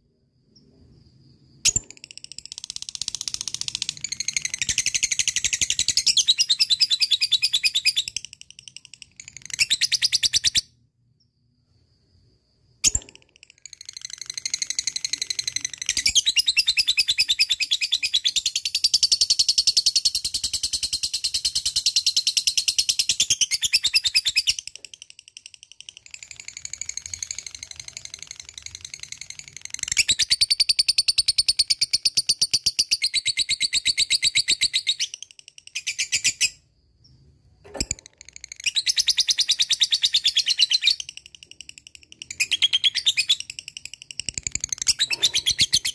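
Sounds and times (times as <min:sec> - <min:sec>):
single click: 0:12.8 - 0:13.4
lovebird chattering trill: 0:37.8 - 0:45.9.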